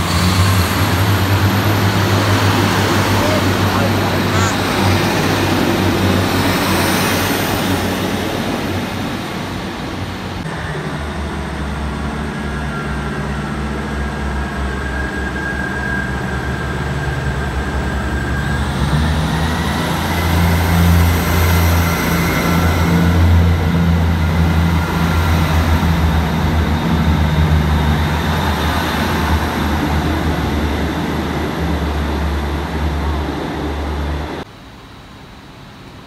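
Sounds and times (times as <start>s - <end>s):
train pulling away: 0.0s - 35.8s
diesel engine drone: 0.0s - 36.0s
whine rising in pitch: 10.4s - 34.4s.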